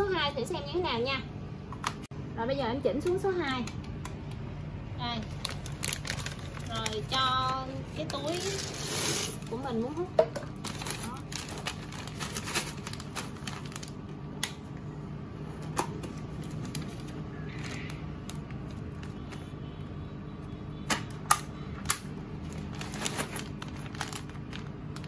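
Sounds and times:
plastic bag being handled: 0:05.0 - 0:14.1, 0:16.1 - 0:19.5, 0:22.4 - 0:25.0.

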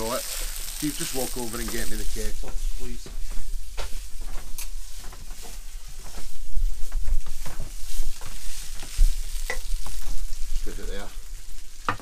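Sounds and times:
footsteps: 0:01.6 - 0:11.2.

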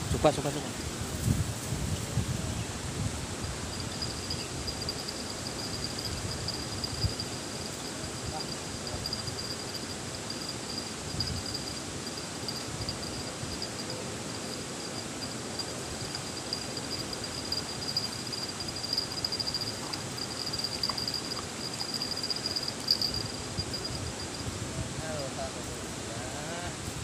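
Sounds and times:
insect trilling: 0:03.4 - 0:26.8.

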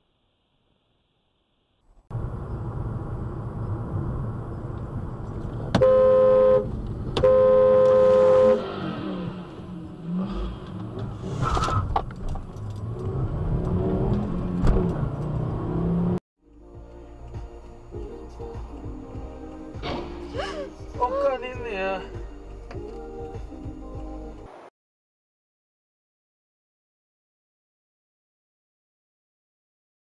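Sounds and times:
road noise: 0:01.8 - 0:24.7
car engine revving: 0:02.1 - 0:16.2
car horn honking: 0:05.7 - 0:08.8.

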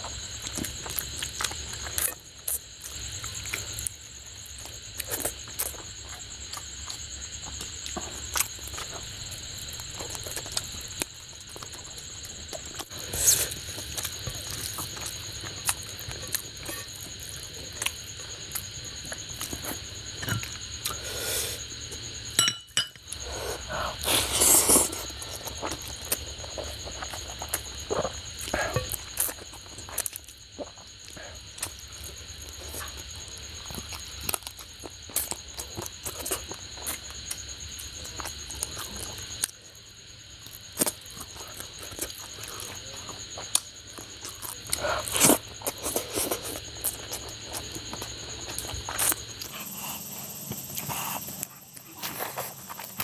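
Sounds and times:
faint high whine: 0:00.0 - 0:53.0
wet chewing and lip smacking: 0:40.8 - 0:53.0.

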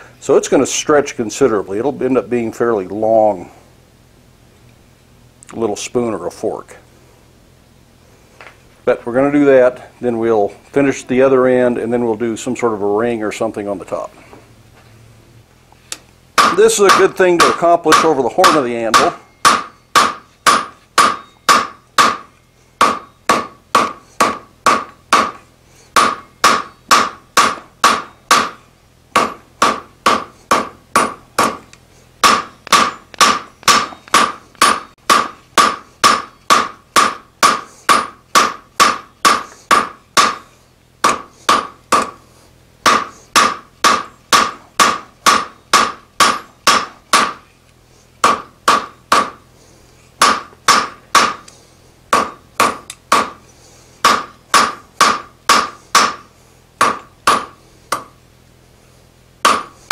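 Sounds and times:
hammer striking steel on anvil: 0:16.4 - 0:25.4, 0:26.0 - 0:28.6, 0:29.2 - 0:40.4, 0:41.0 - 0:42.2, 0:42.8 - 0:47.4, 0:48.2 - 0:49.4, 0:50.2 - 0:51.5, 0:52.1 - 0:53.4, 0:54.0 - 0:58.2, 0:59.4 - 0:59.9.

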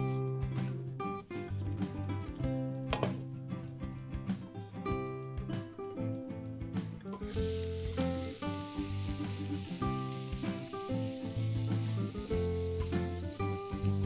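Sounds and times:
background music: 0:00.0 - 0:14.0
vegetables sizzling in oil: 0:07.1 - 0:14.0.

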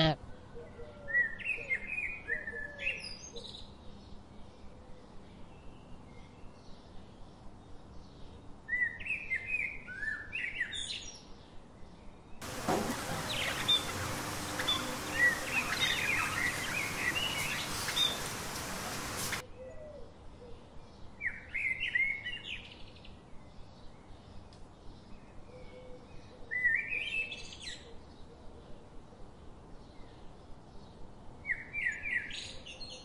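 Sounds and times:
budgerigars chattering: 0:12.4 - 0:19.4
hiss: 0:12.4 - 0:19.4.

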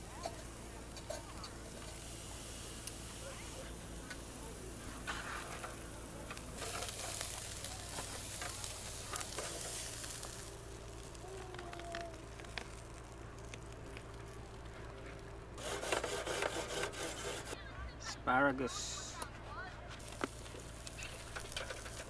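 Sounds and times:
faint sizzle: 0:00.0 - 0:16.0, 0:17.3 - 0:22.0
metal tongs scraping on grill grate: 0:00.2 - 0:02.2, 0:04.1 - 0:10.5, 0:15.6 - 0:17.6, 0:20.8 - 0:22.0.

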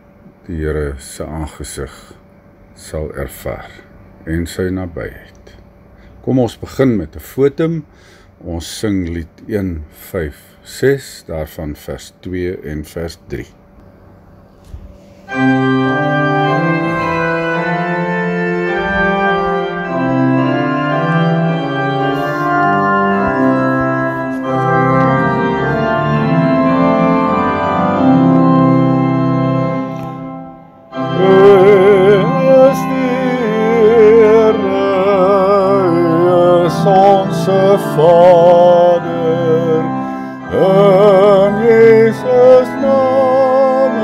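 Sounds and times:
organ playing hymn chords: 0:13.8 - 0:44.0
person singing with vibrato: 0:20.9 - 0:27.3, 0:31.0 - 0:44.0.

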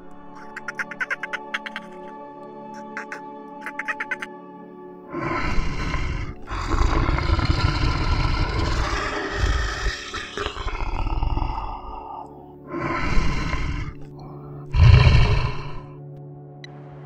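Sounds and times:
lion roaring: 0:05.2 - 0:14.1, 0:14.7 - 0:15.9.

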